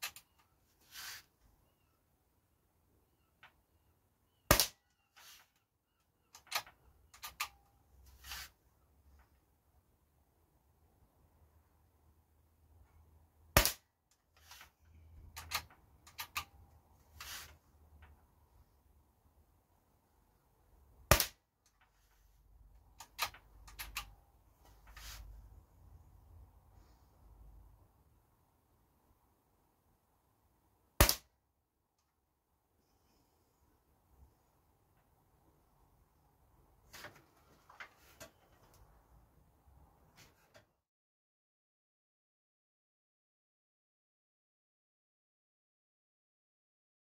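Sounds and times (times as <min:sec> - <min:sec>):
air rifle shot: 0:04.5 - 0:04.8
sharp metallic clicks: 0:06.3 - 0:07.7, 0:15.3 - 0:16.6, 0:22.8 - 0:24.2.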